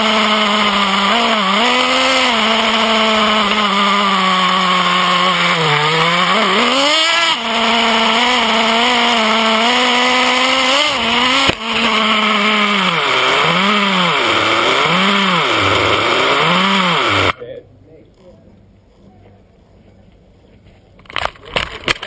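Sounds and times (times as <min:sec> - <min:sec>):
nitro engine revving: 0:00.0 - 0:17.4.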